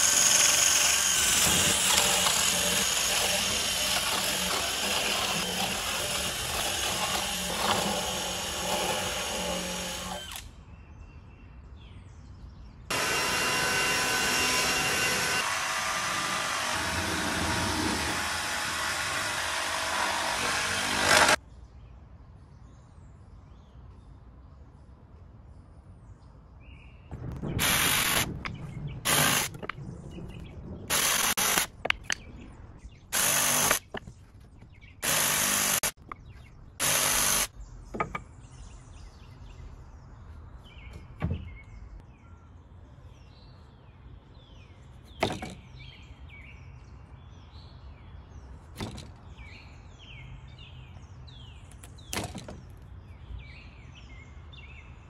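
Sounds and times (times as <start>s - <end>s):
cordless drill drilling into wood: 0.0s - 10.5s, 12.9s - 21.4s, 27.6s - 28.2s, 29.1s - 29.5s, 30.9s - 31.7s, 33.2s - 33.8s, 35.0s - 36.0s, 36.8s - 37.5s.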